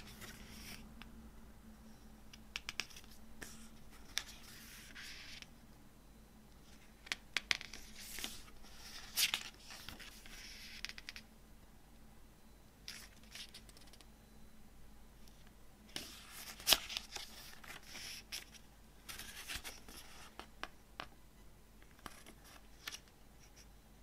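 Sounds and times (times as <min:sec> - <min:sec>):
paper pages rustling: 0:07.6 - 0:11.1, 0:15.9 - 0:20.5.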